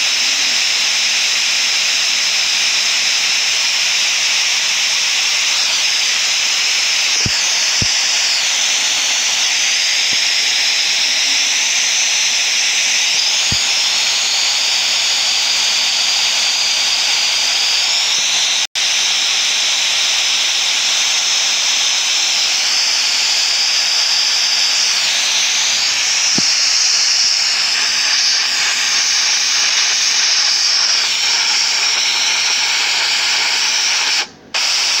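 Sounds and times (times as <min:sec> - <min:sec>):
static hiss: 0:05.1 - 0:18.3, 0:22.5 - 0:35.0.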